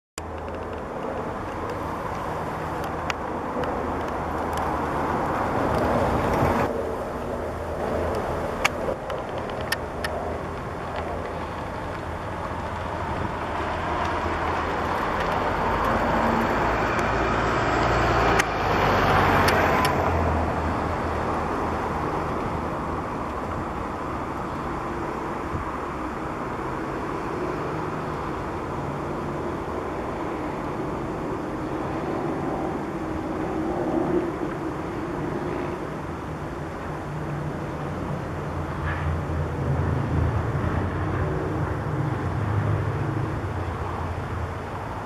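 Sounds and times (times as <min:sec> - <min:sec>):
sharp clicks: 0:00.2 - 0:04.8, 0:08.0 - 0:12.7
road traffic noise: 0:00.2 - 0:45.0.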